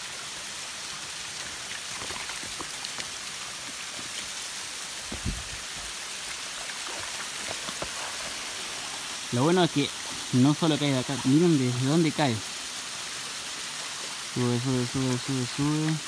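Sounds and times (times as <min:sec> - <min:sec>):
waterfall splashing onto rocks: 0:00.0 - 0:16.0
low thump: 0:05.1 - 0:05.5.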